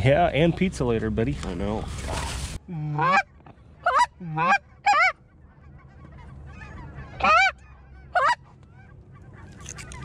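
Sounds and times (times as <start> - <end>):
goose honking: 2.1 - 10.0.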